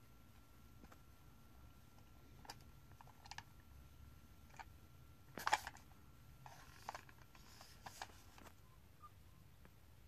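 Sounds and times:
plastic model clicking and rustling: 2.4s - 3.5s, 5.4s - 8.5s
plastic model clatter: 5.4s - 8.5s.

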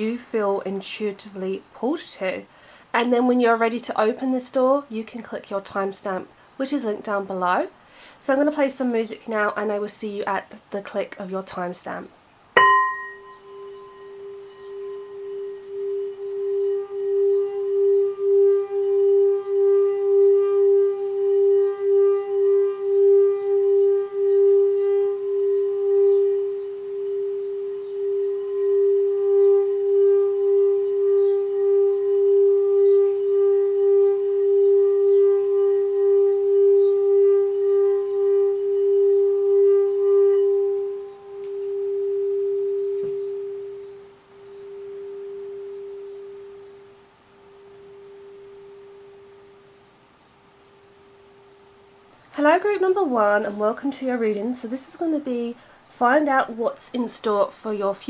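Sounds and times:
singing bowl ringing: 12.6s - 54.5s.

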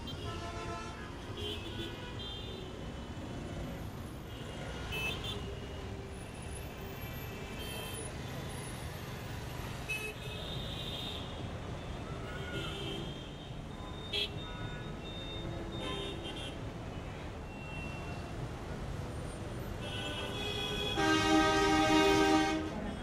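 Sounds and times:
traffic engines rumbling: 0.0s - 23.0s
long horn blast: 20.7s - 23.0s.

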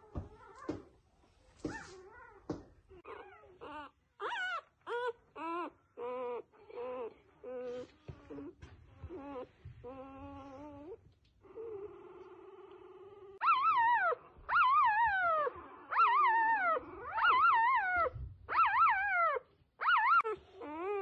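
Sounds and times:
puppy crying: 1.7s - 21.0s.

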